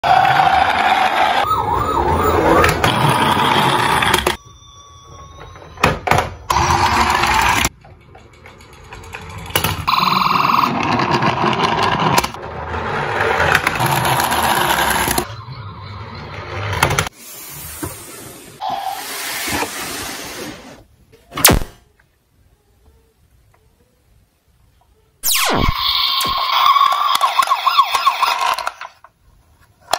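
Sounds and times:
toy electronic siren: 0.2s - 7.7s, 9.9s - 10.8s, 14.3s - 17.1s, 25.2s - 29.0s
plastic toy clicks and clatter: 26.8s - 29.1s.

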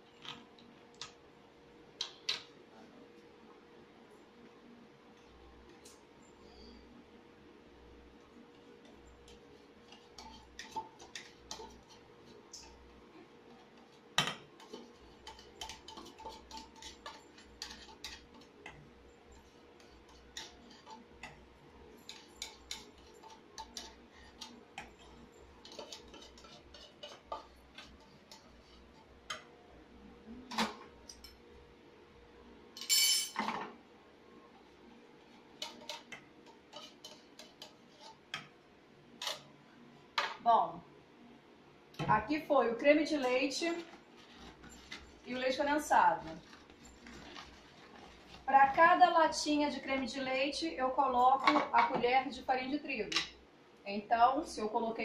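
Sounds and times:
spoon scraping in tin cans: 9.8s - 12.8s, 13.6s - 29.3s, 35.2s - 38.4s, 42.9s - 52.0s.

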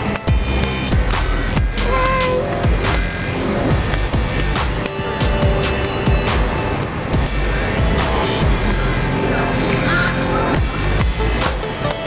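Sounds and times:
electronic music: 0.2s - 6.5s.

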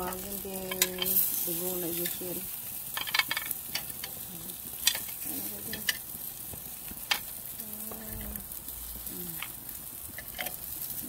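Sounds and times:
metal tongs clicking on grates: 0.0s - 1.3s, 2.9s - 4.2s, 4.8s - 6.0s, 9.3s - 10.6s
mussels sizzling on grill: 0.0s - 11.0s.

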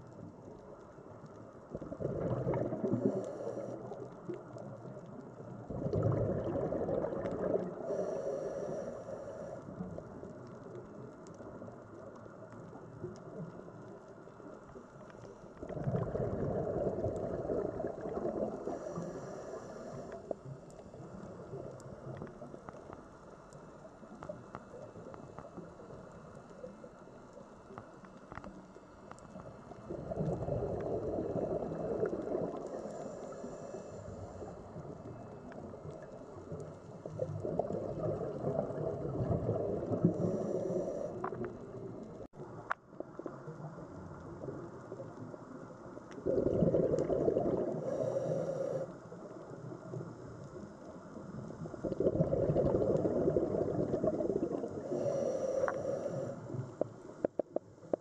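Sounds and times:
faint clicks: 0.0s - 5.7s, 6.4s - 46.2s, 52.7s - 58.0s
hiss of inhalation: 7.7s - 9.6s, 18.6s - 20.4s, 32.6s - 34.7s, 40.0s - 41.4s, 47.7s - 49.0s, 54.7s - 56.7s
bubbling regulator exhaust: 46.2s - 48.9s, 51.8s - 56.1s.

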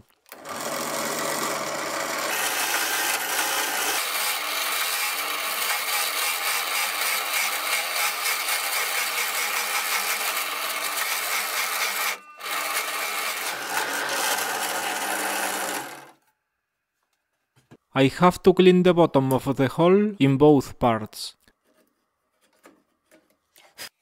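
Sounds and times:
drill press cutting wood: 0.2s - 16.2s.

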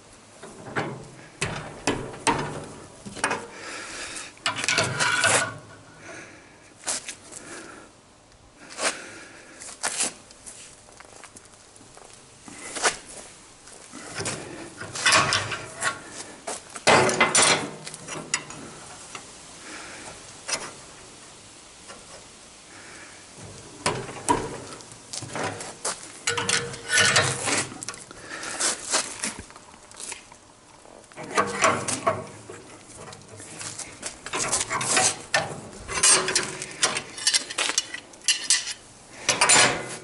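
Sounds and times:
metal rod and wrench clanking: 4.4s - 5.6s, 14.1s - 16.1s, 16.8s - 18.7s, 26.2s - 28.0s, 31.2s - 40.0s.

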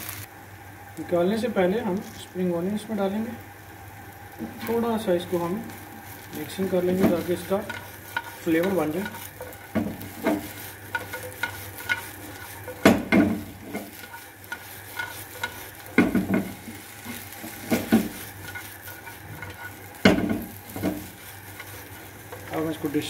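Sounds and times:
fish sizzling in a wok: 0.0s - 23.0s
spatula clattering on pan: 6.8s - 22.7s.

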